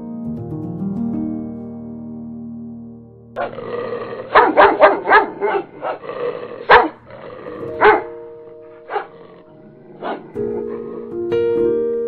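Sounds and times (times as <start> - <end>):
dog barking: 3.4 - 11.1.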